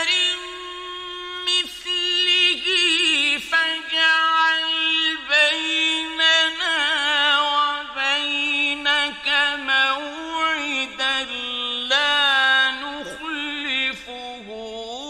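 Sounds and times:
man chanting melodically: 0:00.0 - 0:15.0.

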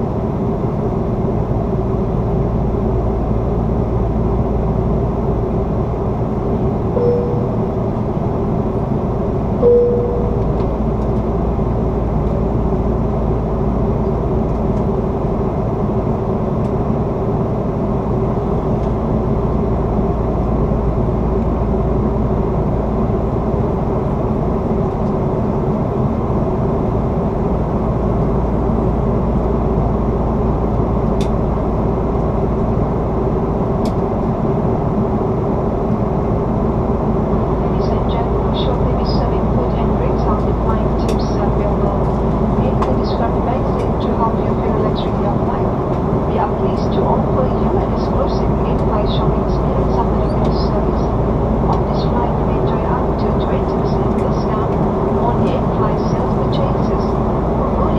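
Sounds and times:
aircraft cabin engine roar: 0:00.0 - 0:57.9
low hum: 0:00.0 - 0:57.9
short beeps: 0:07.0 - 0:07.7, 0:09.6 - 0:10.6.

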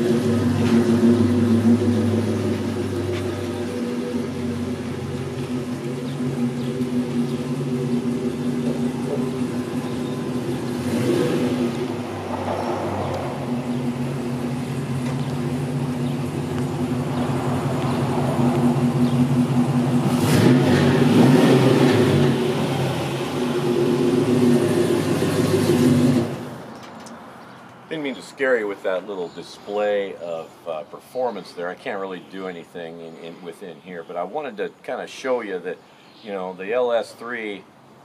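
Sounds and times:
truck engine through exhaust: 0:00.0 - 0:26.8.

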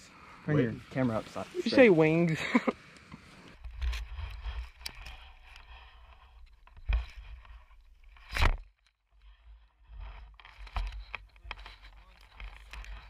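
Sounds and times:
rustling through grass: 0:00.6 - 0:08.4.

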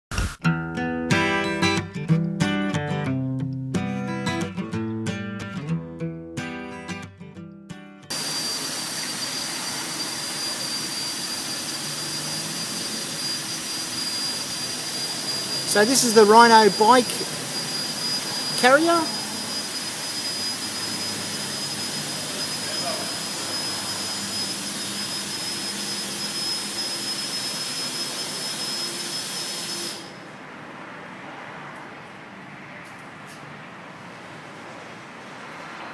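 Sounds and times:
electric winch whining: 0:08.1 - 0:30.4.

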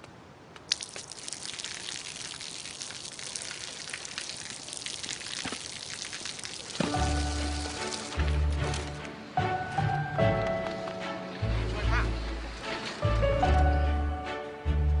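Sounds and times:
water dripping and splashing: 0:00.5 - 0:09.0.

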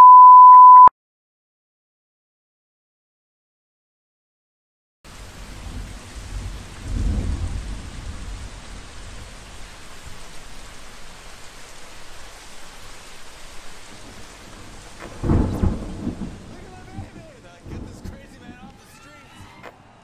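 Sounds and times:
thunder rumbling: 0:05.1 - 0:11.0, 0:13.6 - 0:20.0
heavy rain falling: 0:05.1 - 0:20.0
loud thunderclap: 0:05.2 - 0:09.7, 0:13.9 - 0:19.5.

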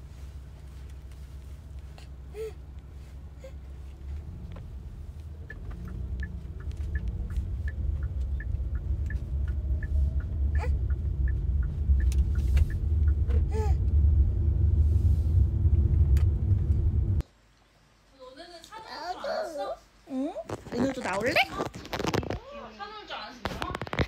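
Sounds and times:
car road and engine rumble: 0:00.0 - 0:17.2
light regular ticking: 0:04.5 - 0:14.0.

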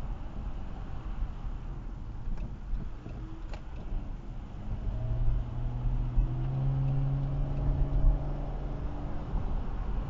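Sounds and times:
engine hum: 0:00.0 - 0:10.0
road and engine rumble: 0:00.0 - 0:10.0.

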